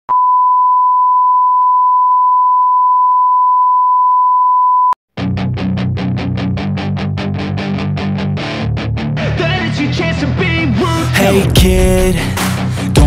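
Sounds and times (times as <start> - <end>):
fast driving beat music: 9.2 - 13.0.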